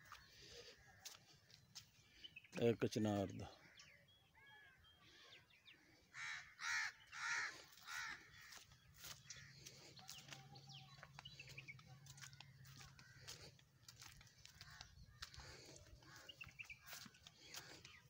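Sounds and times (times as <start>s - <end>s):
small birds chirping: 0.0s - 18.0s
crow cawing: 6.1s - 9.7s, 12.0s - 17.9s.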